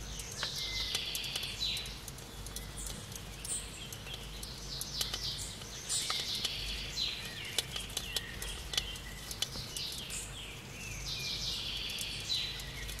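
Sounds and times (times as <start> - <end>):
sharp clicks: 0.0 - 6.6
birds chirping: 0.0 - 13.0.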